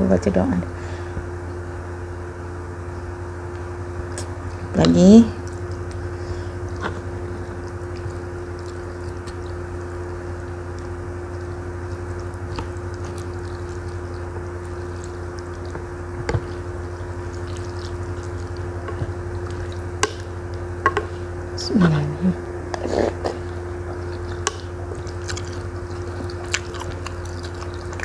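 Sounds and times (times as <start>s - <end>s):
steady low hum: 0.0s - 28.0s
spoon stirring liquid sloshing: 5.4s - 21.2s, 23.3s - 28.0s
spoon knocking against bowl: 20.8s - 21.1s.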